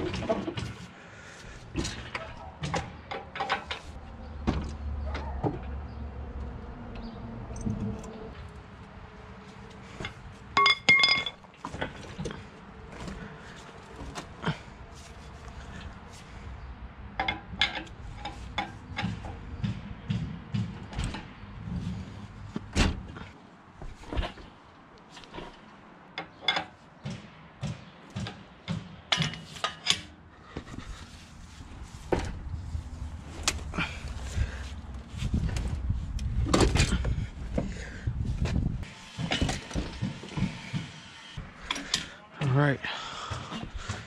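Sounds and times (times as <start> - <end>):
metal clanks and knocks: 0.0 - 0.9, 1.6 - 6.0, 9.8 - 14.6, 17.1 - 24.5, 25.2 - 30.9, 38.4 - 42.6
heavy shuffling rumble: 11.2 - 16.8, 17.9 - 25.7, 30.4 - 38.9.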